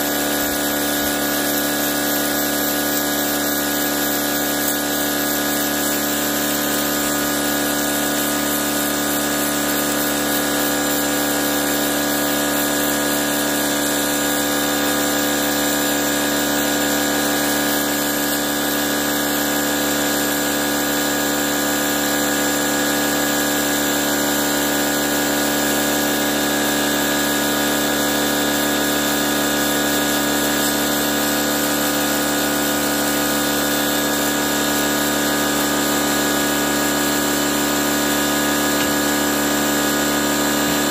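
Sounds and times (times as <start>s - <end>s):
pressure washer motor humming: 0.0s - 40.9s
water jet spraying concrete: 0.0s - 40.9s.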